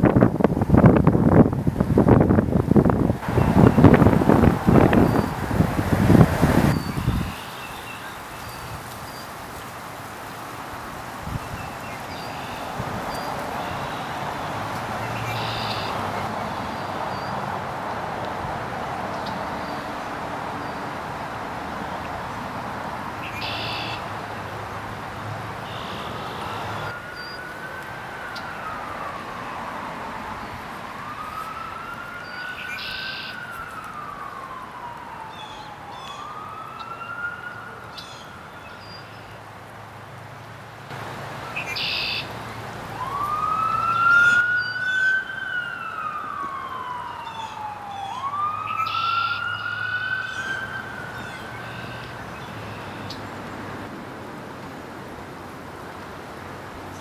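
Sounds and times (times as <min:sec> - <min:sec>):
siren wailing: 0:03.2 - 0:08.5, 0:12.3 - 0:17.3, 0:23.1 - 0:24.1, 0:25.6 - 0:38.6, 0:41.6 - 0:53.1.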